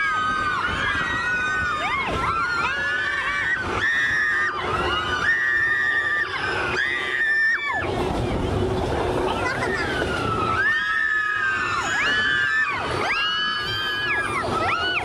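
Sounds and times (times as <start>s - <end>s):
low rumble of moving train: 0.0s - 15.0s
passengers whooping and screaming: 0.0s - 15.0s.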